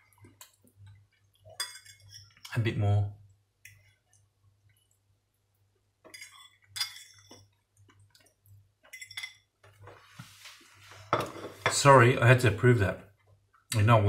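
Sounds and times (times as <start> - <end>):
fork clinking and scraping on plate: 1.5 - 2.5, 6.0 - 7.5, 8.9 - 9.5.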